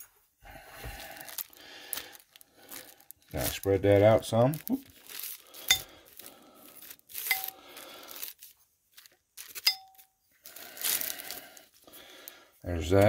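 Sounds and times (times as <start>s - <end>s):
plastic liner crinkling: 0.8s - 13.0s
spoon clinking: 5.7s - 5.9s, 7.2s - 7.6s, 9.6s - 10.1s.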